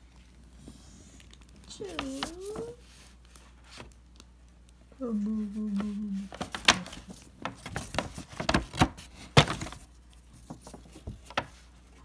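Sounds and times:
paper bag rustling and crackling: 1.2 - 4.0, 5.6 - 12.0.

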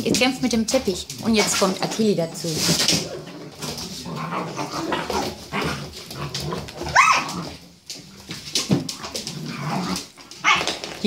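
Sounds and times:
puppies growling: 0.0 - 10.8
puppy yelp: 6.8 - 7.4, 10.4 - 10.7.

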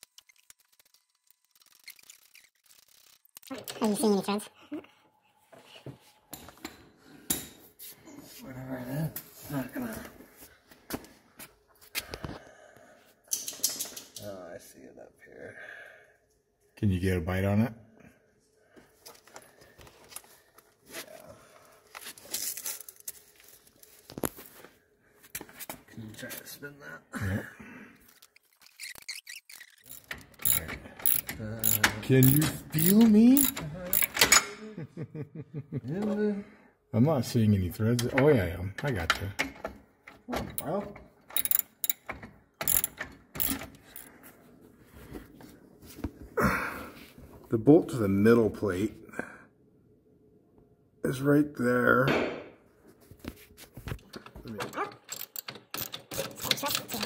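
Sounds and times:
ratchet wrench clicking: 28.6 - 34.4, 41.4 - 44.1, 55.1 - 56.9
rustling and scraping: 52.8 - 54.4.

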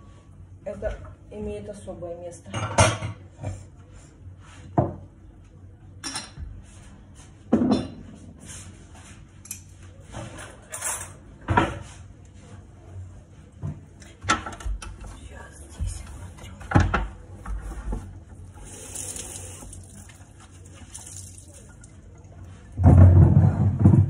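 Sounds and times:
mugs and dishes clinking: 7.5 - 8.1.

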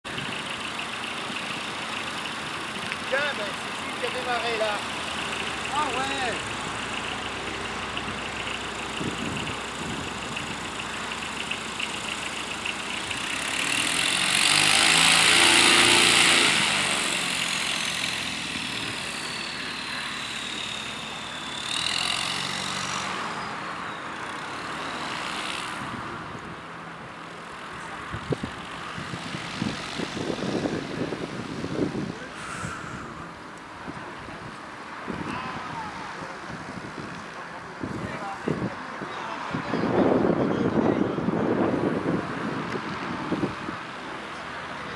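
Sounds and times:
passing engine: 0.0 - 44.9
aircraft diesel engine running: 0.1 - 23.4.

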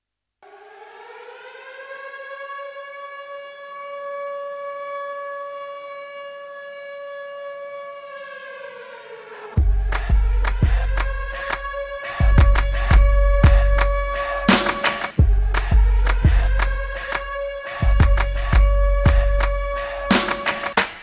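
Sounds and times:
air-raid siren winding: 8.7 - 20.8
heavy bass beat: 9.6 - 21.0.

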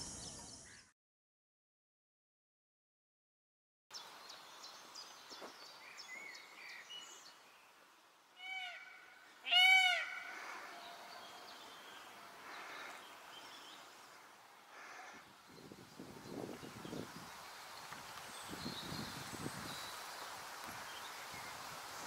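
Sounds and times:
small birds chirping: 3.9 - 22.0
peacock calling: 8.4 - 15.3.

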